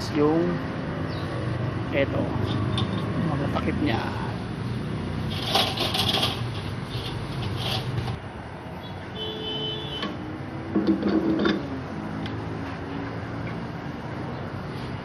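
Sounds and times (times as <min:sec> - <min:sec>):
metal parts clinking on steel tray: 0:05.3 - 0:07.9.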